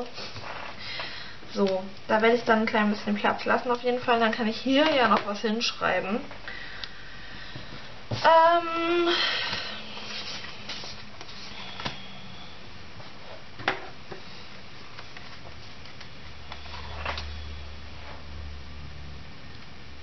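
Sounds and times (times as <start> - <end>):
breath: 0.8 - 1.5, 6.4 - 8.0, 9.1 - 10.3, 11.4 - 12.5
woman humming: 8.3 - 10.2.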